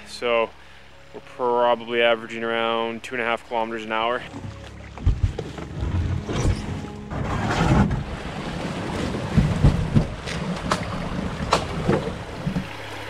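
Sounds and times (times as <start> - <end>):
water rushing: 0.0 - 13.0
sharp knocks: 9.2 - 12.2.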